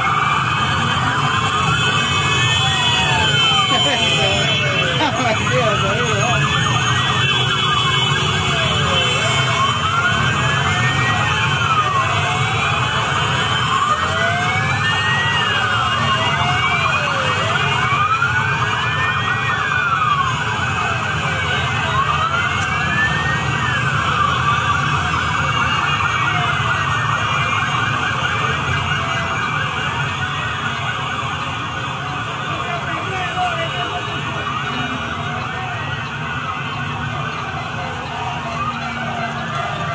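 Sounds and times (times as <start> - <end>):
sirens wailing: 0.0 - 39.9.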